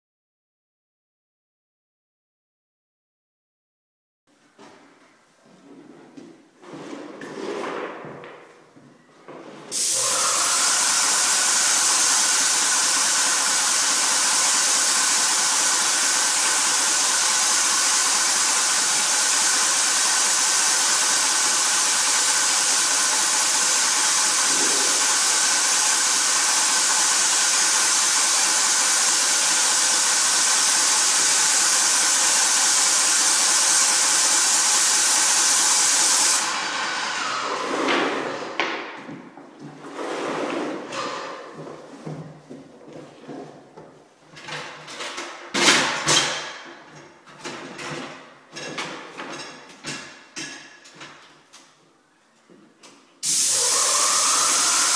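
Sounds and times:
paint sprayer hissing: 0:09.7 - 0:36.6, 0:53.2 - 0:54.9
paint sprayer whine: 0:09.7 - 0:39.7, 0:53.2 - 0:54.9.

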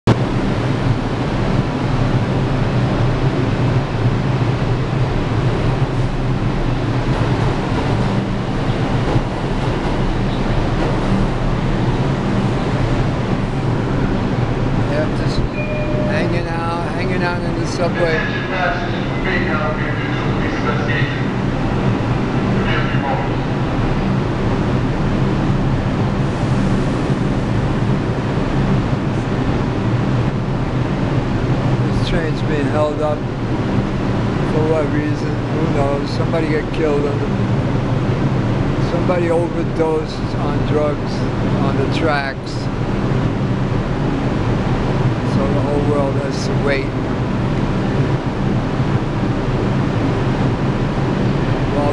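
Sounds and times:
low hum: 0:00.0 - 0:35.6
subway train rumble: 0:00.0 - 0:51.9.

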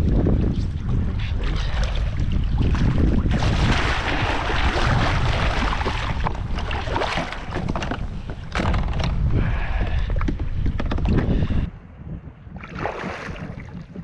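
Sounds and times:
wind buffeting microphone: 0:00.0 - 0:14.0
water sloshing: 0:00.6 - 0:11.7
water splashing: 0:00.7 - 0:08.7, 0:12.6 - 0:14.0.

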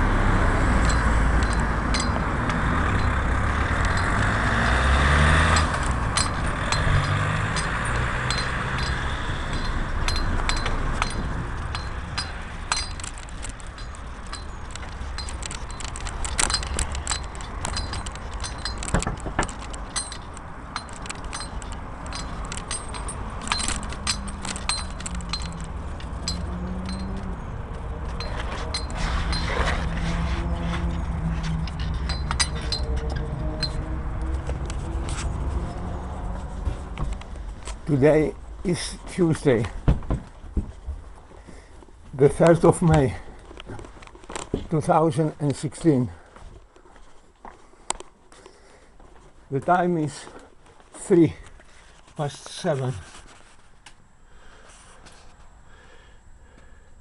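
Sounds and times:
vehicle engine rumbling: 0:00.0 - 0:57.0
keys jangling: 0:00.8 - 0:40.4.

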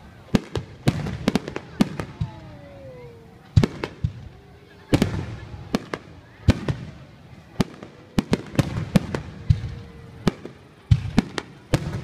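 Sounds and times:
fireworks bursting: 0:00.0 - 0:12.0.

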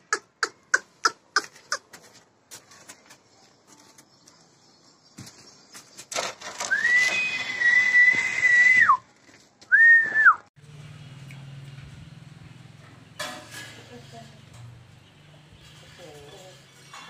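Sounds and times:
person whistling: 0:09.7 - 0:10.4.

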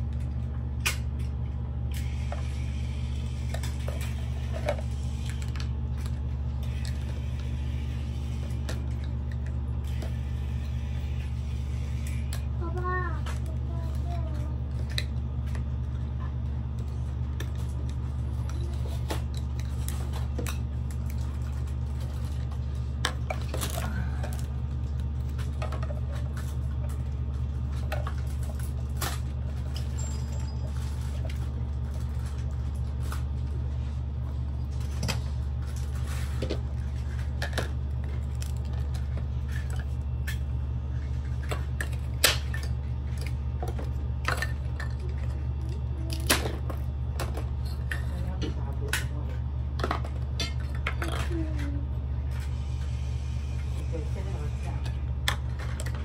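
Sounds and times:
low steady hum: 0:00.0 - 0:56.0
toy kitchen pieces clattering: 0:41.3 - 0:49.1, 0:49.8 - 0:51.8.

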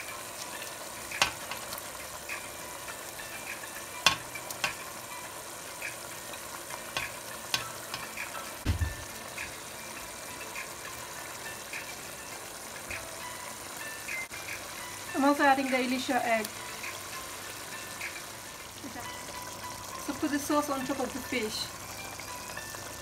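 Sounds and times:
sauce simmering and bubbling in pot: 0:00.0 - 0:23.0
dull thump: 0:08.6 - 0:09.0.

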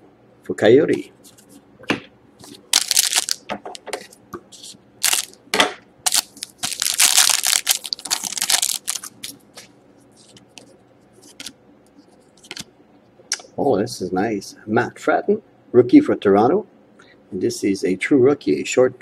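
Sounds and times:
foil wrapper crinkling: 0:02.4 - 0:03.5, 0:05.0 - 0:05.4, 0:06.0 - 0:09.4
foil wrapper tearing: 0:02.7 - 0:03.4, 0:05.0 - 0:05.4, 0:06.0 - 0:09.4.

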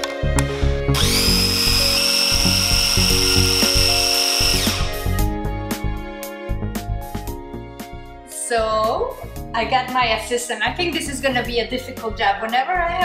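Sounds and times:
food processor motor whine: 0:00.9 - 0:05.1.

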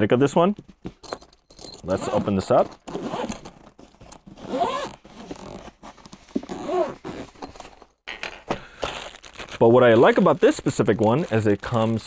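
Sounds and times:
zipper being pulled open: 0:01.8 - 0:07.8.

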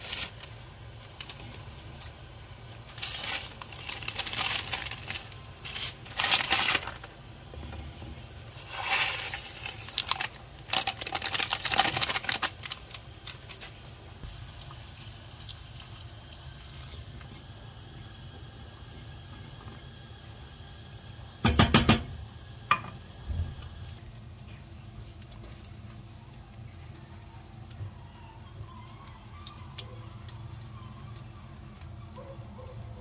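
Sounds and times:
noodles crackling in sauce: 0:00.0 - 0:17.6
sauce simmering: 0:00.0 - 0:21.4.

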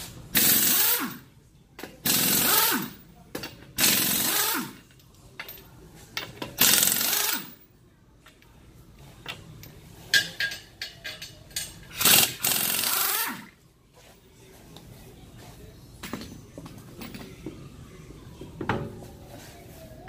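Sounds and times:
impact wrench hammering lug nuts: 0:02.0 - 0:04.8, 0:06.5 - 0:07.5, 0:11.9 - 0:13.5.

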